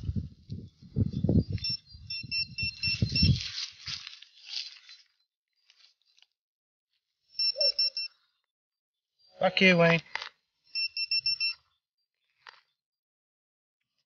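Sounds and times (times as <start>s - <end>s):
pinpointer beeping: 1.6s - 3.4s, 7.4s - 8.2s, 10.7s - 11.6s.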